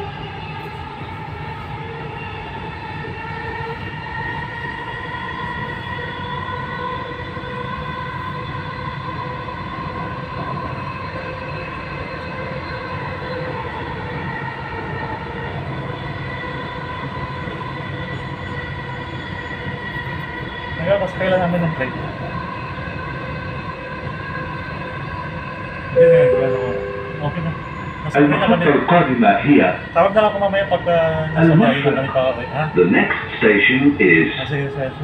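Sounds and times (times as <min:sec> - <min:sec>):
train rushing rumble: 0:07.0 - 0:35.0
steady high tones: 0:26.0 - 0:28.9.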